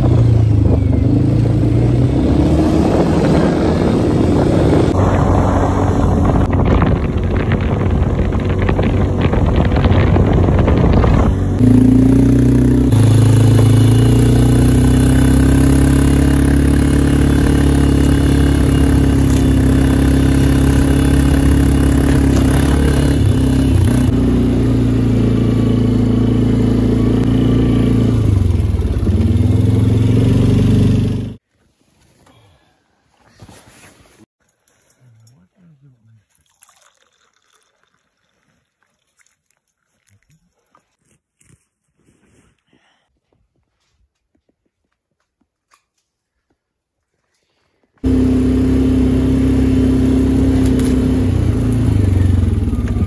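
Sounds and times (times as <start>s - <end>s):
atv engine running: 0.0s - 31.4s, 48.0s - 53.0s
wind on microphone: 2.4s - 11.7s.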